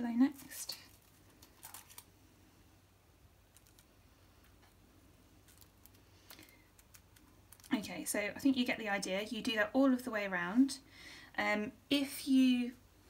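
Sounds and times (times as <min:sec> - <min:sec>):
plastic bottle crinkling: 0:00.3 - 0:02.1.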